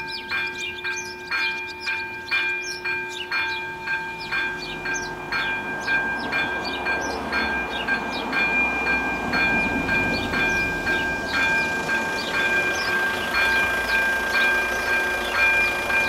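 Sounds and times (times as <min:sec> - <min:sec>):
level crossing bell ringing: 0:00.0 - 0:16.0
car rumbling over crossing: 0:04.2 - 0:16.0.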